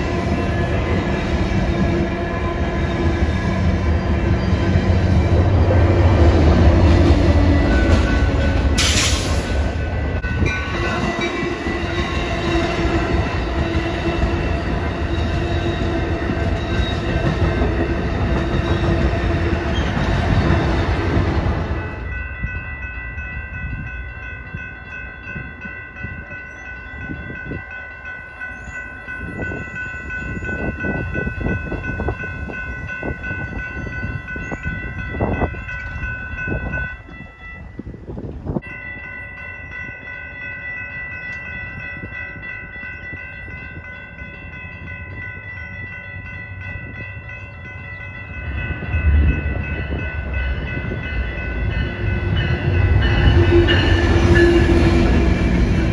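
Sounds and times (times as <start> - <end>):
diesel locomotive rumble: 0.0 - 22.4
railroad crossing bells ringing: 0.0 - 55.9
train wheels clacking over rails: 6.2 - 21.6.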